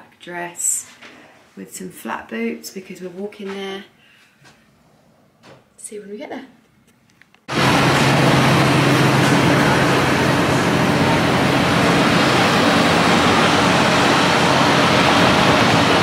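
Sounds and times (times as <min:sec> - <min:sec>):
low engine hum: 0:07.5 - 0:16.0.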